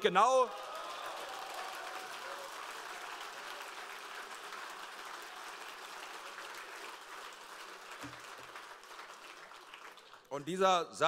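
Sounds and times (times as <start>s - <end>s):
audience applauding: 0.0s - 10.5s.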